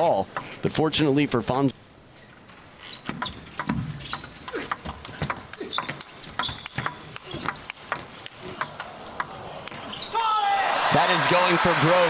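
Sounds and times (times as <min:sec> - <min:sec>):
table tennis ball clicking: 0:03.2 - 0:09.8
players grunting: 0:04.4 - 0:06.0.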